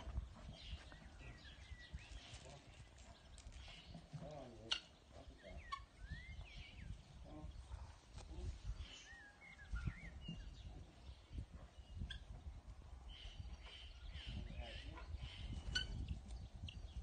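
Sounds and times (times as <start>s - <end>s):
wind rumbling on microphone: 0.0s - 17.0s
bird chirps: 0.4s - 7.7s, 8.8s - 12.4s.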